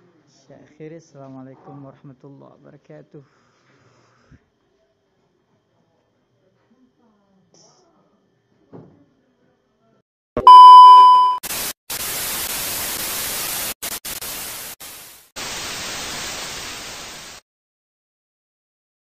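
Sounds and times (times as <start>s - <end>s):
loud steady beep: 10.4s - 11.4s
tv static hiss: 11.5s - 17.4s.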